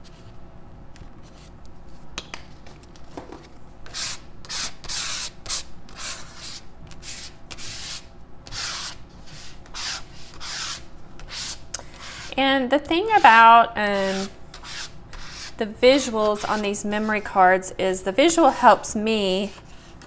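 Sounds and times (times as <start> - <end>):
tool scraping over paper: 3.8 - 17.4.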